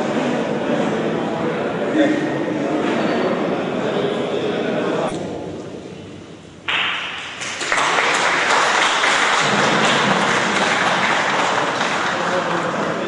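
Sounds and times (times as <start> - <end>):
audience applauding: 6.7 - 13.0.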